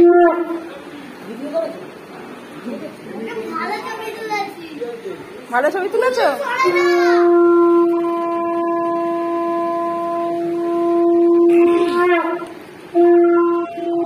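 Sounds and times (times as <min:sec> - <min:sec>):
conch shell blown: 0:00.0 - 0:01.0, 0:06.6 - 0:14.0.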